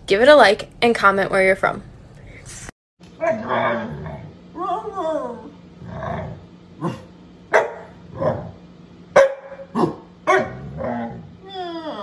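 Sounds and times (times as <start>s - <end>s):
dog grumbling: 3.2s - 7.2s, 9.7s - 12.0s
dog barking: 7.5s - 8.0s, 9.2s - 10.6s.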